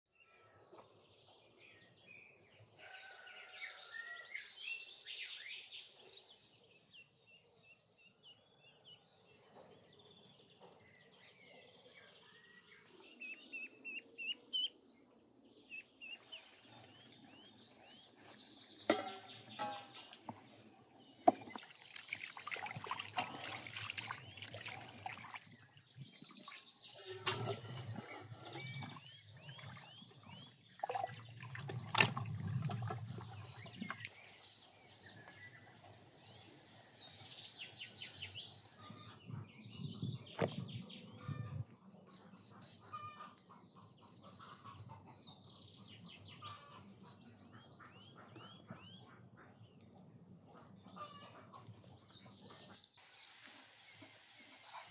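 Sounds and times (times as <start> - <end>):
birds chirping: 12.4 - 54.9.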